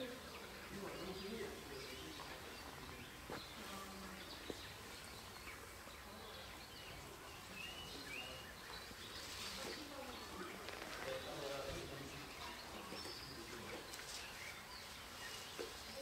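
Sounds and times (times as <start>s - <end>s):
low outdoor hiss: 0.0s - 16.0s
pandas chewing bamboo: 8.7s - 11.6s.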